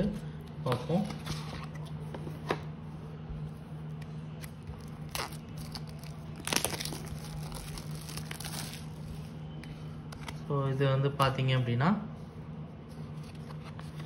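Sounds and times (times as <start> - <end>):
steady low hum: 0.0 - 14.0
packaging crinkling: 4.6 - 9.0.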